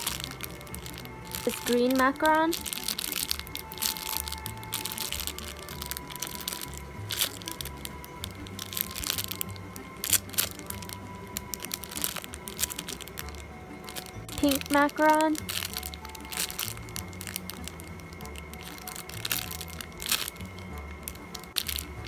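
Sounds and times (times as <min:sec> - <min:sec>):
background music: 0:00.0 - 0:22.0
plastic bag crackling: 0:00.0 - 0:22.0.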